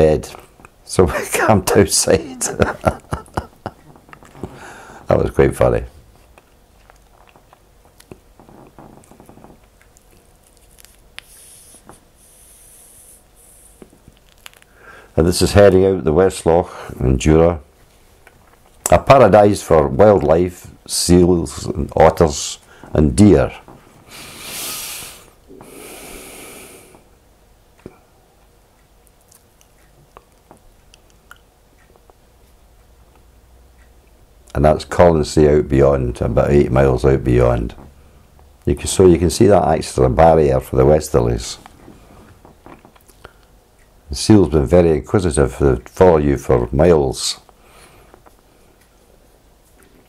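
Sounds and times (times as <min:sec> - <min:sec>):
mouth noises: 0:00.3 - 0:14.8
faint mouth clicks: 0:09.6 - 0:14.7, 0:29.1 - 0:32.2, 0:42.7 - 0:43.9
high hiss bursts: 0:11.2 - 0:13.9, 0:24.1 - 0:27.1.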